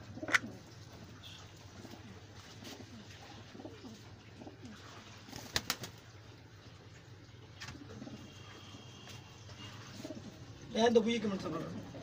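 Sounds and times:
pigeons cooing: 0.0 - 0.8, 1.6 - 5.6, 7.6 - 8.8, 9.8 - 10.6.

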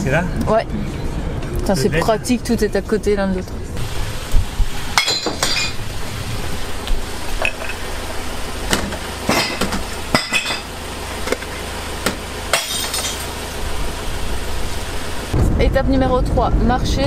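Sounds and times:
low rumble: 3.6 - 8.7, 13.5 - 17.0
glass bottles crashing into bin: 4.9 - 5.8, 8.8 - 10.7, 12.5 - 13.4.

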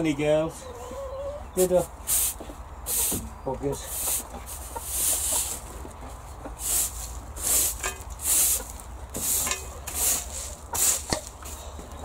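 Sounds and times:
broom sweeping concrete: 1.7 - 3.2, 3.8 - 5.8, 6.6 - 11.8.

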